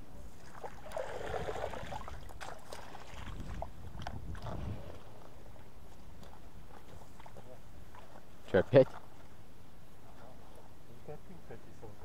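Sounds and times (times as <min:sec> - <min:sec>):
water splashing: 0:00.4 - 0:09.4.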